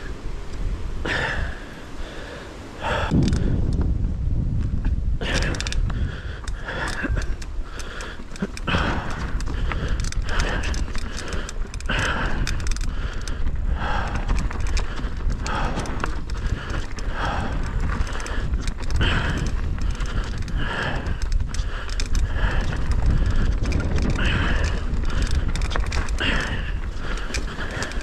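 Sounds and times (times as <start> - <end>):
tyres rumbling on dirt trail: 0.0 - 28.0
rider breathing hard: 1.0 - 4.0, 4.9 - 28.0
wind on camera: 2.7 - 28.0
chain and frame rattle: 5.2 - 5.8, 6.4 - 28.0.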